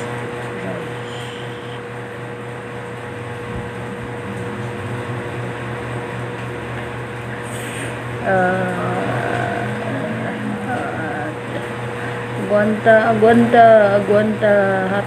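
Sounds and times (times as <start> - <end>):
mechanical hum: 0.0 - 15.0.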